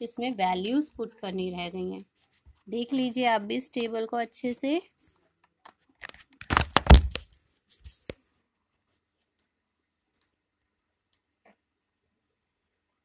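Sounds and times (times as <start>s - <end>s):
clinking and rattling: 6.5s - 7.4s.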